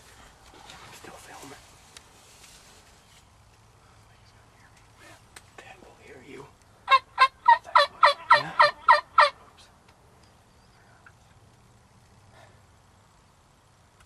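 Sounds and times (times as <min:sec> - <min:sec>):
turkey yelping: 0:06.8 - 0:09.4.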